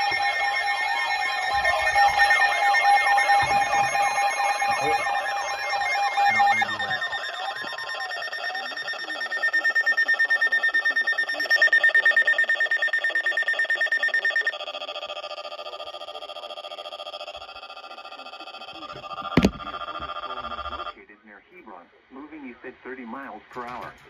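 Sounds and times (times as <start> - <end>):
weather alert radio alarm tones: 0.0 - 15.6, 18.5 - 20.9
fast pulsing beep: 0.0 - 21.0.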